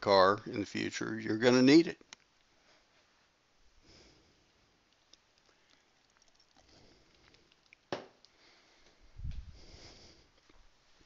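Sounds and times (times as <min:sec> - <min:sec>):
faint soft rustles: 0:02.3 - 0:07.6, 0:08.3 - 0:11.0.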